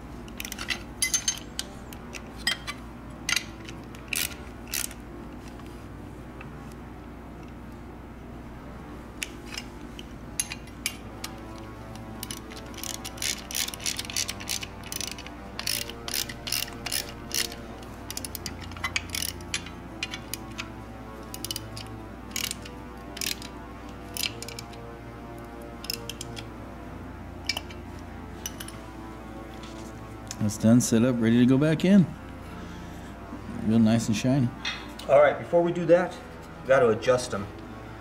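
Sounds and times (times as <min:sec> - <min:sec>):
faint background music: 0:00.0 - 0:38.0
socket ratchet clicking: 0:00.3 - 0:05.0, 0:09.2 - 0:24.9, 0:25.6 - 0:26.5.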